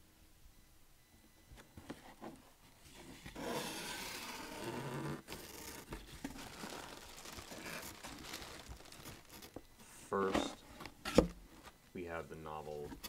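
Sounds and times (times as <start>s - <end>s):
plastic packaging crinkling: 5.2s - 9.6s.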